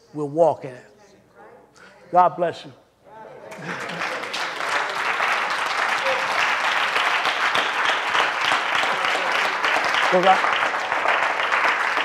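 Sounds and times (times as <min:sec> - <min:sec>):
crowd applauding: 0:03.5 - 0:12.0.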